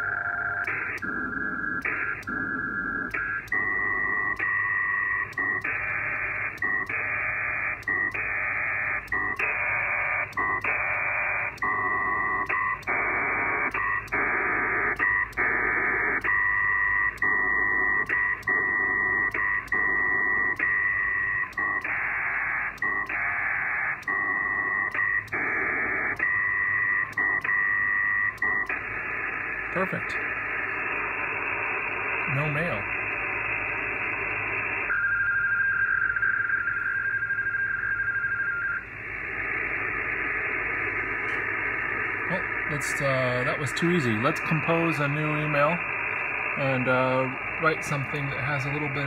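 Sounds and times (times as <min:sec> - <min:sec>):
buzzing warble of data tones: 0:00.0 - 0:49.0
radio clicks: 0:00.0 - 0:49.0.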